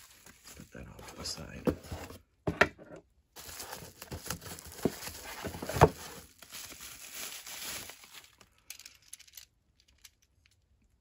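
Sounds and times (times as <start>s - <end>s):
bubble wrap crinkling: 0.0s - 1.3s, 3.4s - 9.4s.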